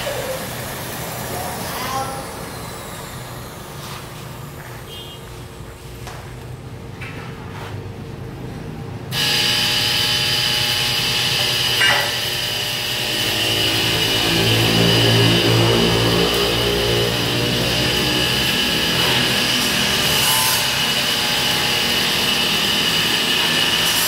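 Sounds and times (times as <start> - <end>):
metal shop noise: 9.1 - 24.0
angle grinder grinding steel: 9.2 - 24.0.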